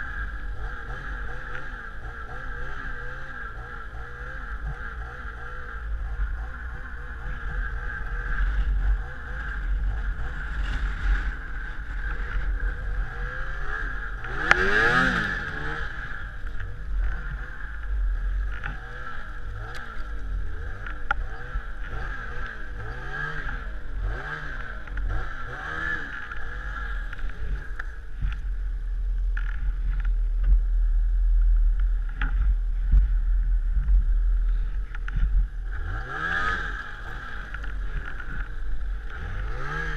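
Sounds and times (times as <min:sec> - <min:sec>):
snowmobile engine revving: 0:00.0 - 0:28.3, 0:34.4 - 0:39.9.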